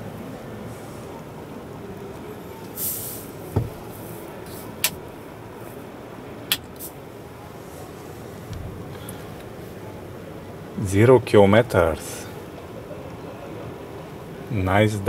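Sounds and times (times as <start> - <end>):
steady background noise: 0.0 - 15.0
short hiss: 2.8 - 4.7, 6.8 - 7.0
low thump: 3.5 - 3.9.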